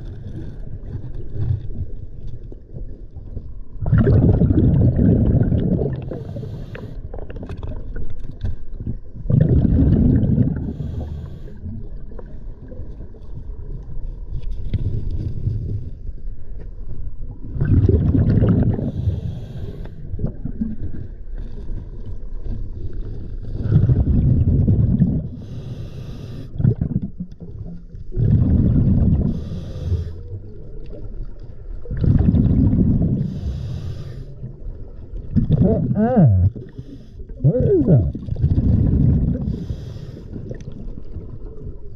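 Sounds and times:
exhaled bubbles gushing: 0:00.0 - 0:06.4, 0:07.1 - 0:11.0, 0:17.4 - 0:19.2, 0:20.1 - 0:21.9, 0:23.5 - 0:25.5, 0:26.5 - 0:29.6, 0:30.7 - 0:33.5, 0:34.4 - 0:41.9
regulator inhale hiss: 0:06.1 - 0:07.1, 0:10.6 - 0:11.8, 0:18.9 - 0:20.1, 0:25.3 - 0:26.6, 0:29.2 - 0:30.3, 0:33.2 - 0:34.5, 0:39.5 - 0:40.4.

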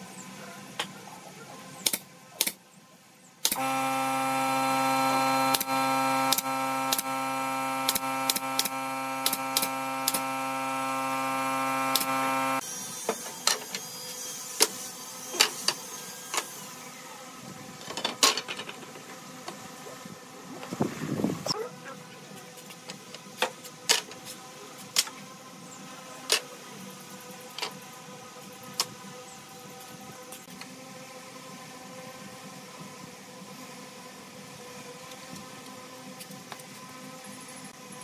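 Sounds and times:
pneumatic nailer firing: 0:01.8 - 0:02.6, 0:03.4 - 0:13.8
air compressor motor humming: 0:03.4 - 0:12.7.

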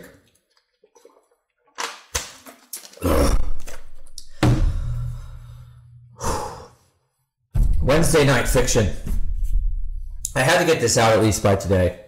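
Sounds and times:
short breath: 0:04.6 - 0:07.1.

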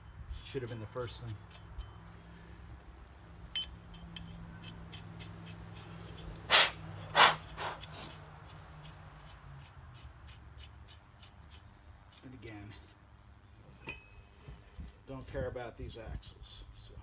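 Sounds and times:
short loud hisses: 0:06.5 - 0:08.1.

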